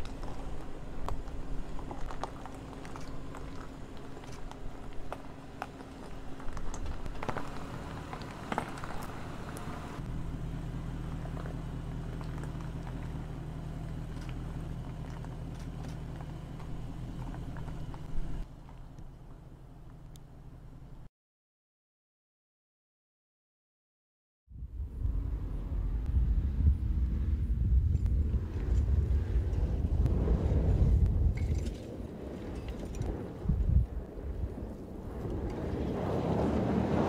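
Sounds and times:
stones crunching under tyres: 0:00.0 - 0:10.1, 0:11.0 - 0:20.7
low engine rumble: 0:00.0 - 0:21.1, 0:24.5 - 0:37.0.

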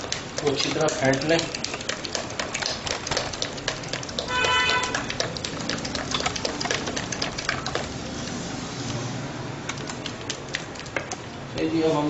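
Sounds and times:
spatula tapping and scraping pot: 0:00.0 - 0:07.9.

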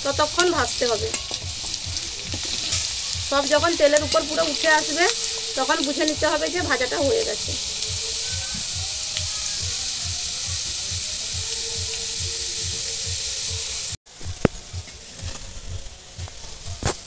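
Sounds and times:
lentils sizzling in hot oil: 0:00.0 - 0:17.0.

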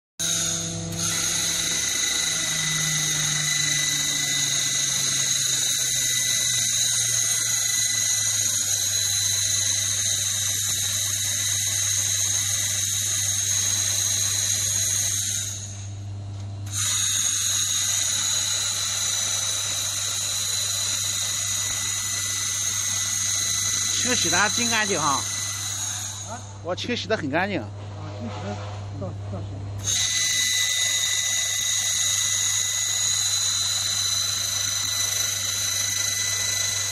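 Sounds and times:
laser cleaner high-pitched whine: 0:00.2 - 0:16.0, 0:16.6 - 0:29.2, 0:29.8 - 0:36.9
low hum: 0:25.0 - 0:29.8.

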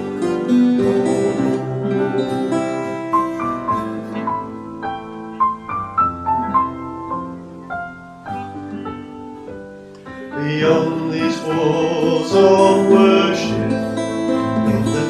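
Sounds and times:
piano playing hymn tune: 0:00.0 - 0:15.0.

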